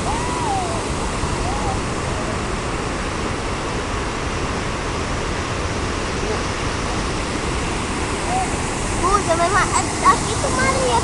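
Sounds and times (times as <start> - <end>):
water rushing through spillway: 0.0 - 11.0.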